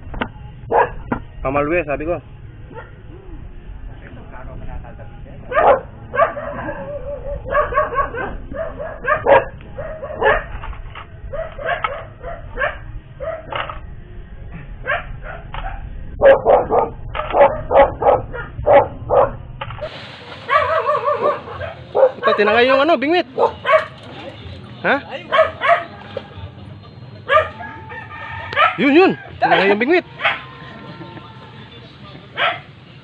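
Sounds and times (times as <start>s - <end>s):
dog barking and yipping: 0.7s - 1.0s, 5.5s - 10.6s, 11.3s - 13.6s, 14.8s - 19.4s, 20.4s - 24.0s, 25.3s - 26.0s, 27.3s - 27.8s, 28.5s - 30.6s, 32.4s - 32.7s.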